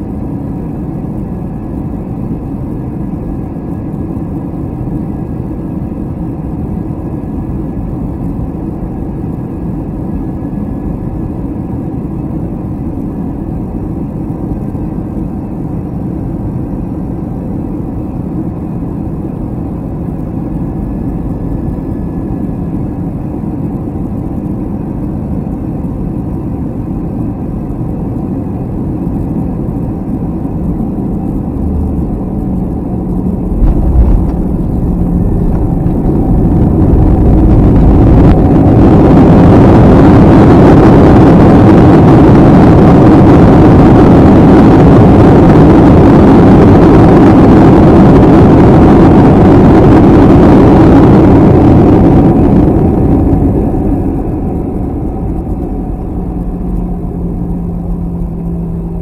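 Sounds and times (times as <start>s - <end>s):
airplane cabin roar: 0.0s - 59.0s
landing gear rumbling on runway: 31.3s - 39.8s, 51.9s - 59.0s.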